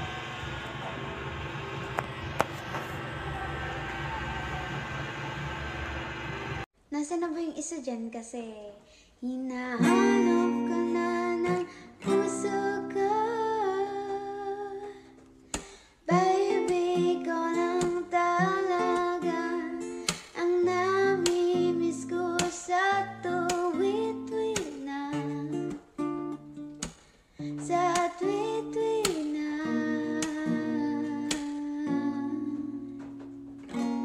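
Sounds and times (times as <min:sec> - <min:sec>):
woman singing: 0:09.2 - 0:15.1, 0:16.0 - 0:25.8, 0:27.4 - 0:33.1
acoustic guitar strumming: 0:09.8 - 0:14.3, 0:15.1 - 0:34.0.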